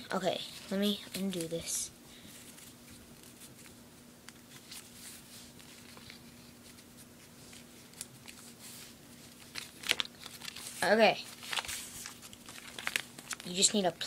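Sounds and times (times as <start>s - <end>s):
paper bill rustling and crinkling: 0.3s - 14.0s.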